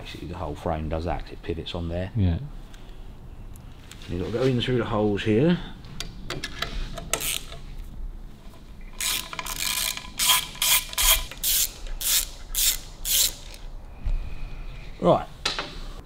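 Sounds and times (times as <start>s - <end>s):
ratchet wrench clicking: 7.1s - 7.6s, 8.9s - 13.6s.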